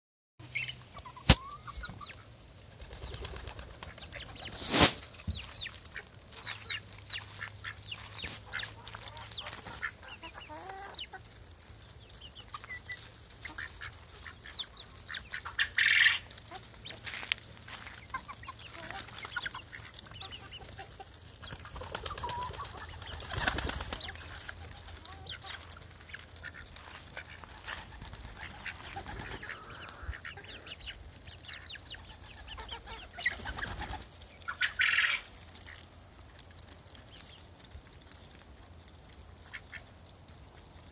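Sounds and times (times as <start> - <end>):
hen clucking: 0.4 - 36.0, 39.3 - 40.9
birds pecking grain: 0.4 - 40.9
wings flapping: 2.7 - 6.0, 21.3 - 30.2, 32.0 - 35.0.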